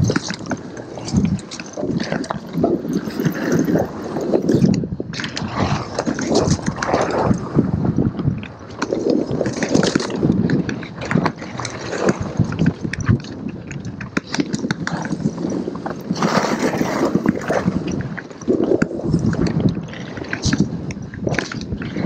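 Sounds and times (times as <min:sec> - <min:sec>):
bike rattling and knocking: 0:00.0 - 0:04.8
bike tyres rolling over dirt: 0:00.0 - 0:22.0.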